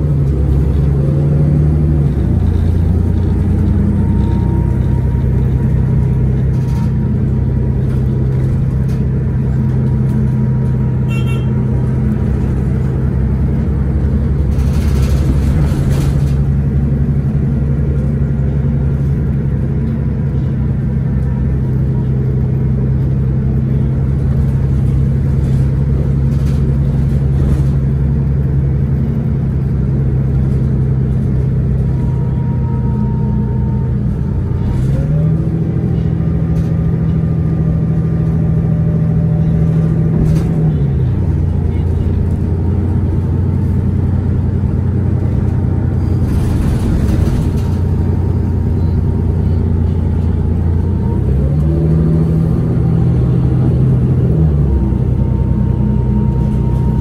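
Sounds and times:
bus engine humming: 0.0s - 57.0s.

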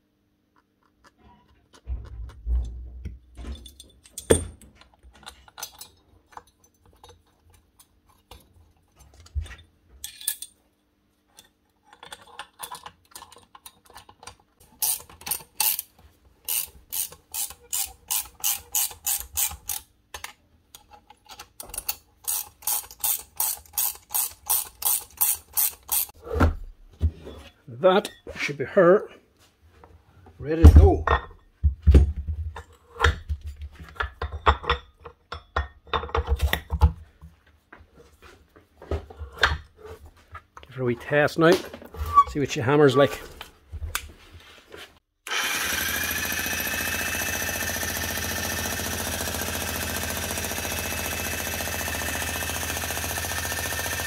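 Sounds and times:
metal parts knocking: 0.9s - 7.6s
ratchet wrench clicking: 14.8s - 15.9s, 16.5s - 19.9s, 21.8s - 26.1s.

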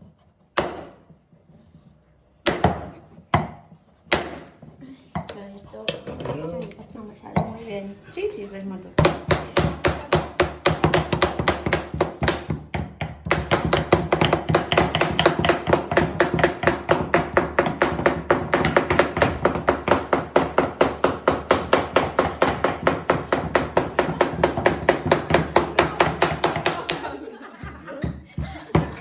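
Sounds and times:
knife chopping on cutting board: 0.5s - 1.3s, 9.0s - 27.0s.

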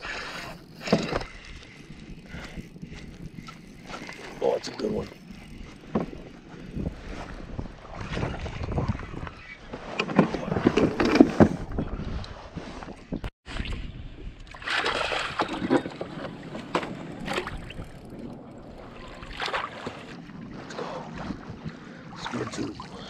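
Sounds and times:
water splashing: 14.5s - 16.0s, 18.8s - 21.0s.

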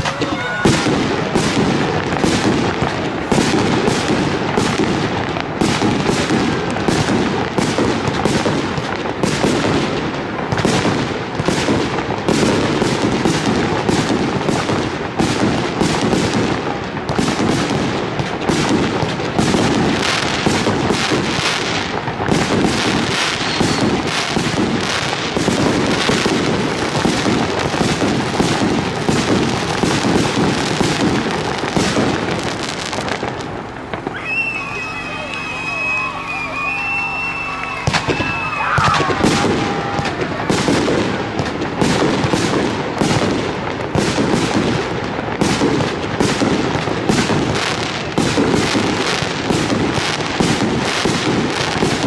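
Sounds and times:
fireworks launch thumps: 0.0s - 9.6s, 37.8s - 44.6s
fireworks bursting reports: 0.0s - 52.0s.

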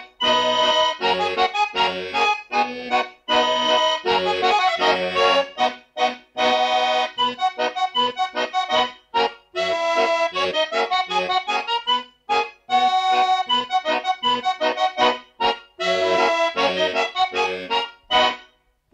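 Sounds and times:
instrumental music of short chords: 0.0s - 18.9s.

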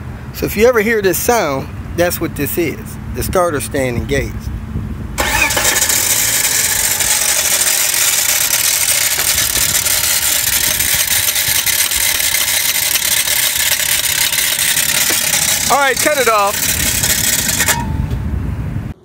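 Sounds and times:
car engine running: 4.4s - 18.4s
starter motor whirring: 5.2s - 18.2s.

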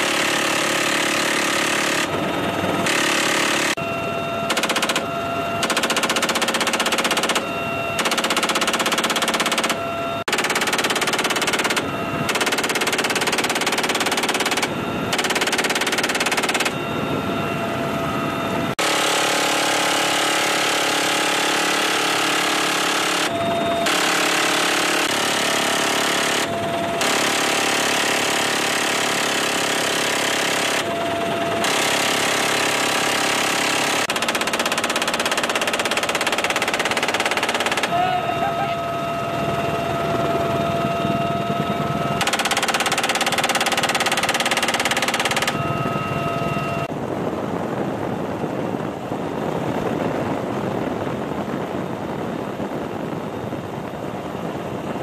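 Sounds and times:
machine guns firing bursts: 0.0s - 3.8s, 4.4s - 16.8s, 18.8s - 45.7s
helicopter turbine whine: 0.0s - 55.0s.

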